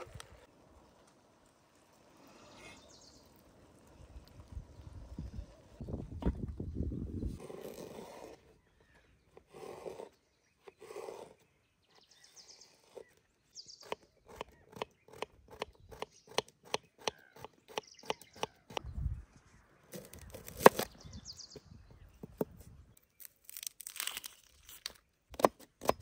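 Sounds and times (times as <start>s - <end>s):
knife crunching into onion: 23.1s - 26.0s.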